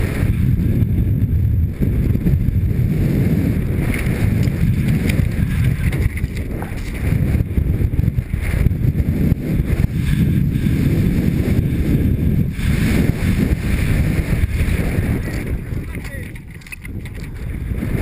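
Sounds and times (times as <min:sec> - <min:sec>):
wind on microphone: 0:00.0 - 0:18.0.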